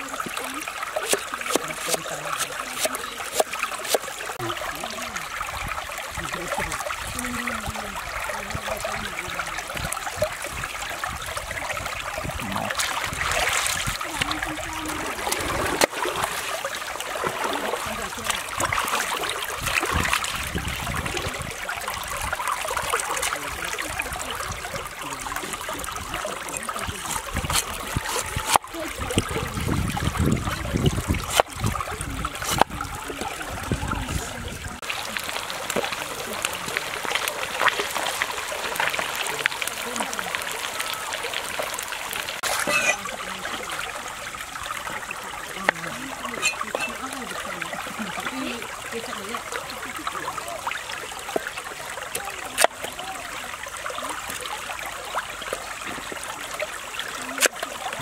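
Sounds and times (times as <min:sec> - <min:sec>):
stream trickling: 0:00.0 - 0:58.0
cleaver striking chopping board: 0:32.5 - 0:32.7.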